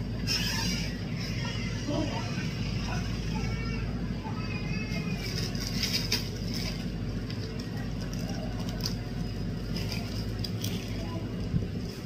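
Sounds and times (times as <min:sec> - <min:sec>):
steady low hum: 0:00.0 - 0:12.0
plastic bag crinkling: 0:05.0 - 0:12.0.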